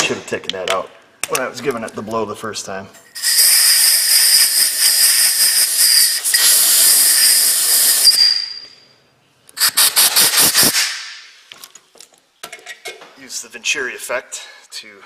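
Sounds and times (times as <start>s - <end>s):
compressed air hissing: 3.2s - 8.5s, 9.6s - 11.3s
thin whistle: 3.2s - 8.9s.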